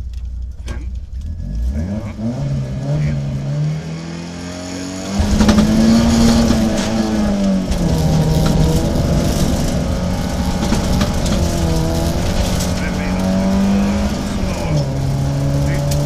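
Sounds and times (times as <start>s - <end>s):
rally car engine revving: 0.0s - 16.0s
stones ticking against car: 5.2s - 16.0s.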